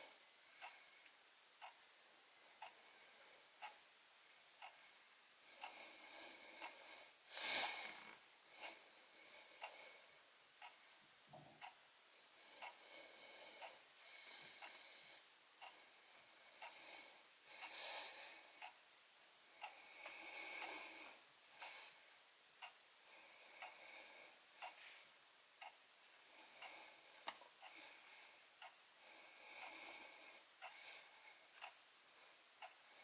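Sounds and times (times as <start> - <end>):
faint sharp clicks: 26.6 - 27.5.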